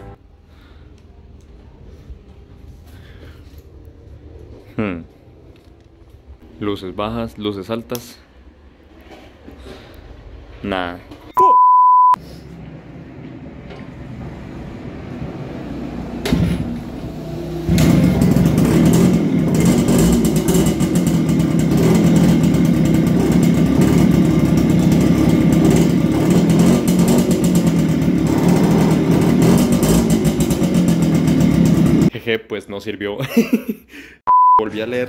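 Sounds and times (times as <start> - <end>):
motorcycle engine starting and idling: 12.6 - 32.1.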